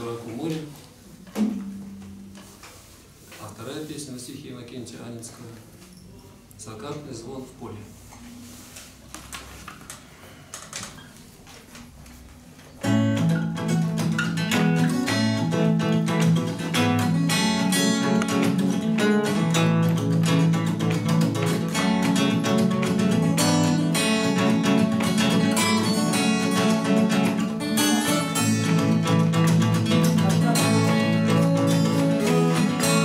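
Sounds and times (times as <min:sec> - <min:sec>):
two acoustic guitars playing: 0:01.0 - 0:03.2, 0:12.8 - 0:33.0.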